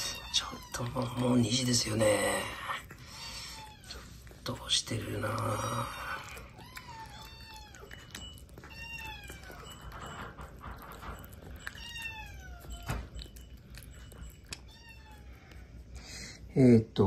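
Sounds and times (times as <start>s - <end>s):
cat meowing: 0.0s - 1.5s, 6.0s - 10.0s, 11.5s - 13.2s, 14.5s - 15.7s.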